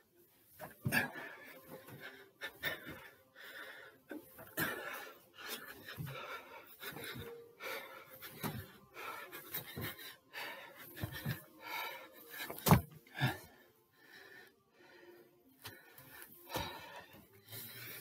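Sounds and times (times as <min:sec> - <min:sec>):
man panting hard: 0:00.5 - 0:18.0
feet thudding on step: 0:12.5 - 0:12.9.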